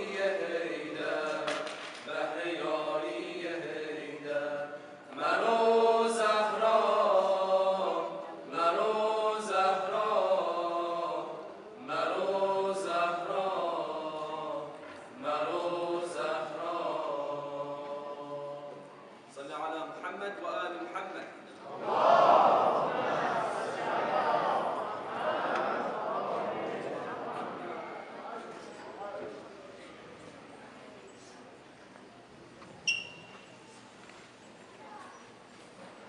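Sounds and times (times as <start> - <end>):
men chanting a cappella: 0.0 - 18.8, 21.6 - 28.3.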